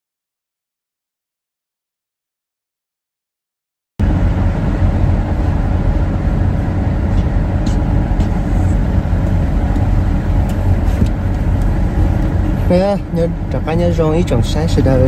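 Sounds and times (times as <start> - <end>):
moving vehicle rumble: 4.0 - 15.0.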